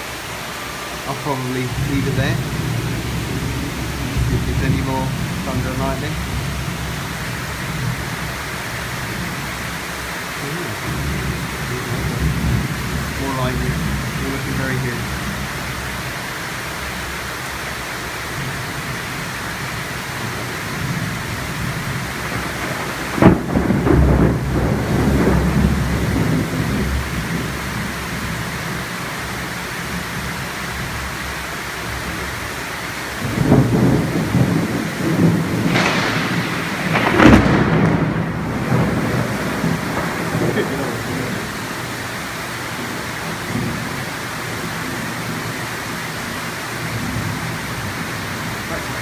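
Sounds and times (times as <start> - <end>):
thunder rumbling: 0.0 - 31.2, 31.8 - 49.0
heavy rain: 0.0 - 49.0
sharp thunder clap: 20.8 - 27.6, 33.2 - 41.8.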